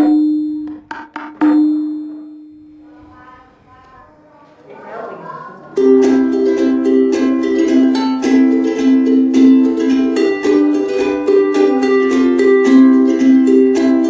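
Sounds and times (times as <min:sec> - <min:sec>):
quick percussion hits: 0:00.0 - 0:02.3
plucked-string melody: 0:05.7 - 0:14.0.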